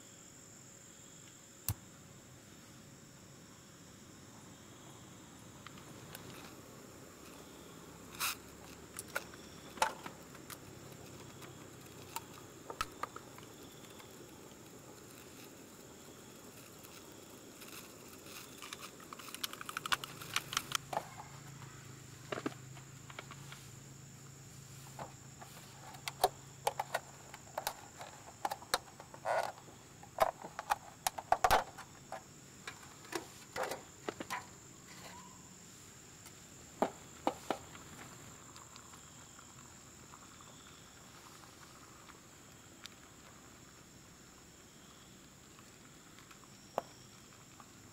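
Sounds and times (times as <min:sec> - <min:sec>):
insects chirring: 0:00.0 - 0:47.9
plastic tray crinkling: 0:17.7 - 0:20.8.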